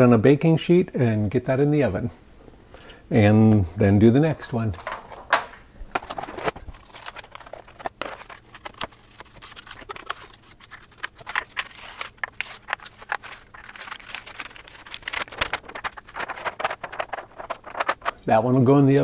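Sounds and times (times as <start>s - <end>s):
foil lid crinkling: 4.8s - 18.3s.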